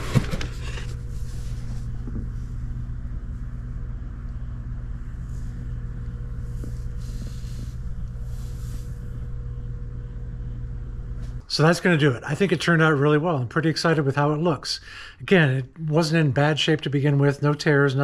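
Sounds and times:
soft scuffs and rustles: 0.0s - 2.8s, 5.1s - 9.1s
steady low hum: 0.0s - 18.0s.

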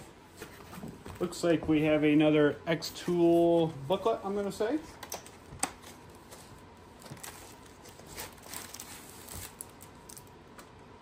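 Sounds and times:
plastic wrapping rustling: 4.0s - 10.6s.

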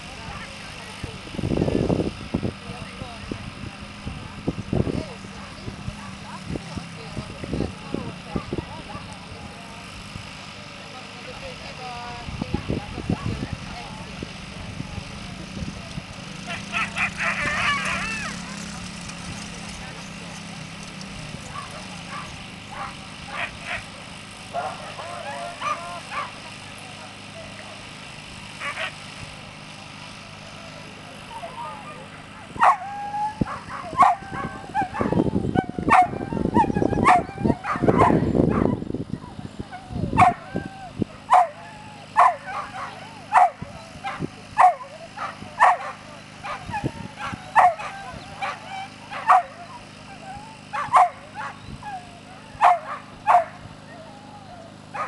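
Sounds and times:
dogs yelping and barking: 16.4s - 18.7s, 21.4s - 23.9s, 24.6s - 26.4s, 28.6s - 29.0s, 31.4s - 55.0s.

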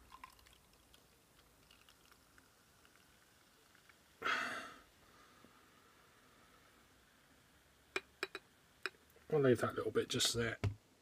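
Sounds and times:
beer pouring into glass: 0.0s - 4.2s
glass clicks: 8.0s - 9.0s.

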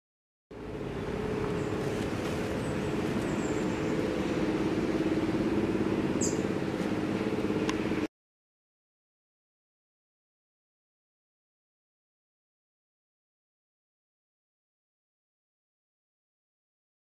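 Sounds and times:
low mechanical hum: 0.5s - 8.1s
high bird chirps: 6.2s - 6.5s.

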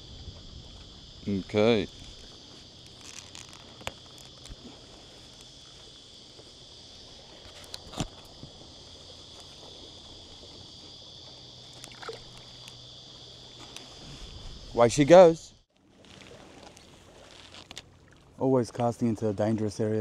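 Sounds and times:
high-pitched insect drone: 0.0s - 15.6s
fish splashing into water: 11.7s - 12.6s.

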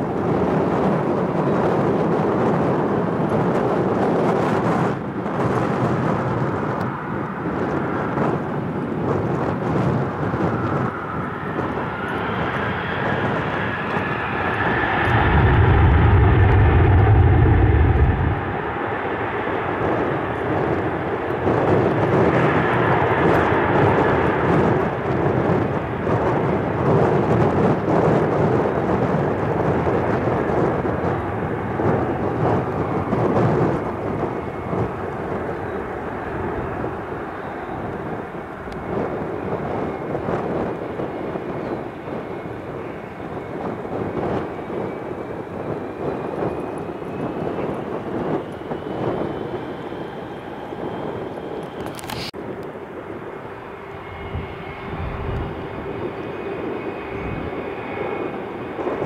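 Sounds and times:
airplane engine roar: 0.0s - 59.0s
faint whine: 10.0s - 19.3s
loud low rumble: 10.1s - 20.6s.

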